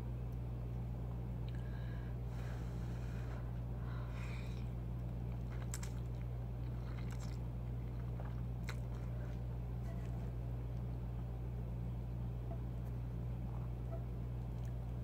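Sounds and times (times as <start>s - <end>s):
steady low hum: 0.0s - 15.0s
wet chewing: 4.5s - 10.9s.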